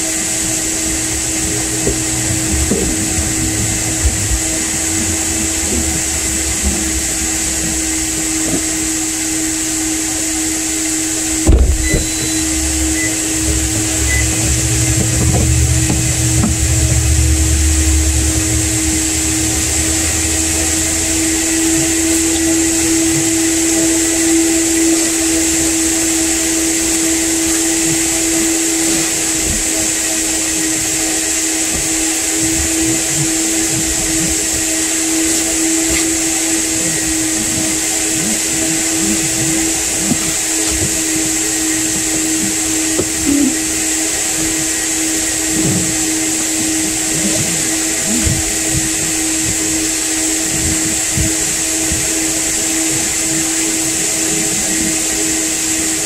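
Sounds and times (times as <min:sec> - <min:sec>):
low rumble: 0:00.0 - 0:38.0
vacuum cleaner running: 0:00.0 - 0:56.0.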